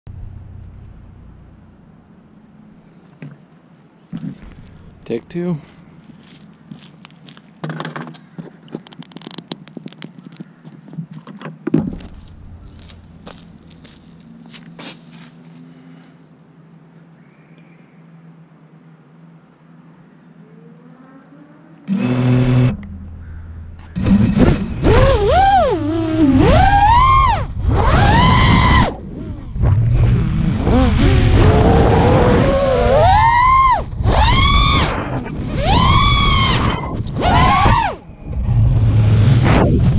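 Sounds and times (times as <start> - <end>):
drone motors whining: 21.1 - 39.9.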